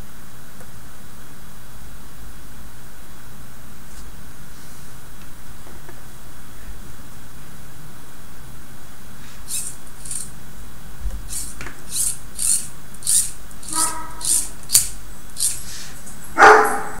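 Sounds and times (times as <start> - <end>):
hands rubbing plastic parts: 9.4 - 10.3, 11.3 - 16.3.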